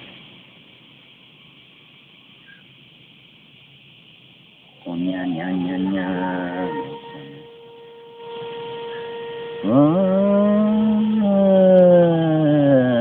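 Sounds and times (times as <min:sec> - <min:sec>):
faint steady hum: 0:00.0 - 0:13.0
man crooning cat-like note: 0:04.8 - 0:13.0.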